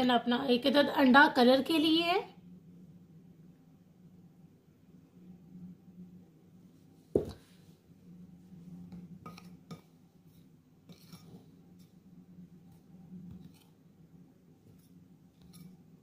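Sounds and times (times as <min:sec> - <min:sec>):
spoon stirring in a bowl: 0:08.9 - 0:12.1.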